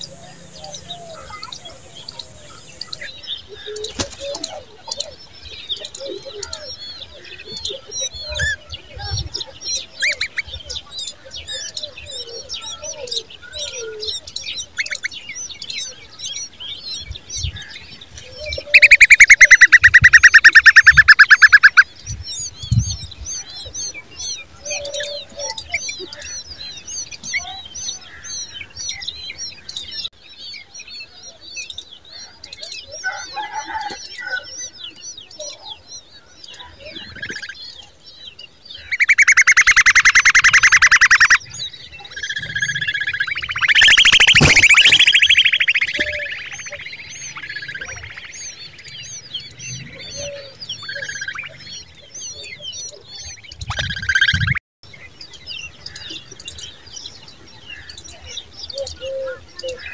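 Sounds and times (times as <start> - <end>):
birds chirping: 0.0 - 59.9
bird rattling call: 38.9 - 41.4, 42.3 - 46.5.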